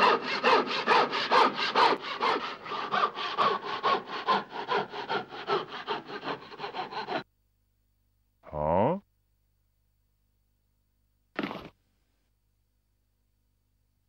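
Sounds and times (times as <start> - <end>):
saw cutting wood: 0.0 - 7.2.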